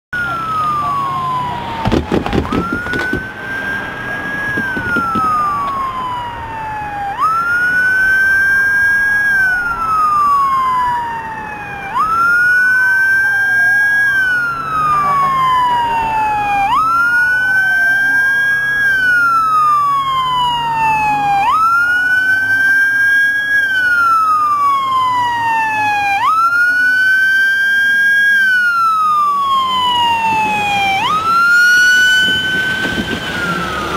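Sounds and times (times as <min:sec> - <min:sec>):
fire engine siren wailing: 0:00.1 - 0:33.9
low horn blast: 0:14.6 - 0:16.4.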